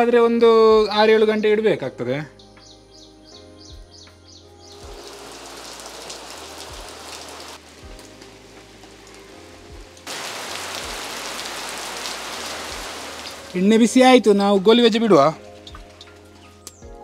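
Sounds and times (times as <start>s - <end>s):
heavy rain pattering on leaves: 4.8s - 16.8s.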